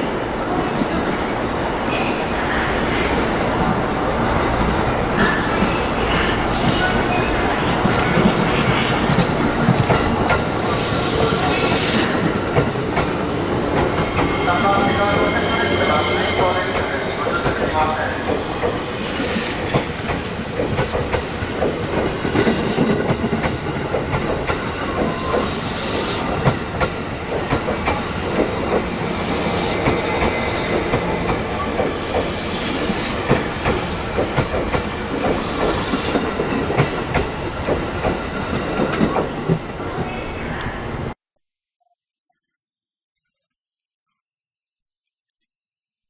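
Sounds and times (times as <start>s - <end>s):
electric train running past: 0.0s - 41.1s
train hiss: 10.3s - 12.4s, 13.9s - 19.9s, 22.0s - 23.0s, 24.9s - 26.4s, 28.8s - 33.6s, 35.0s - 36.3s
train wheels clacking over rail joints: 17.4s - 39.6s.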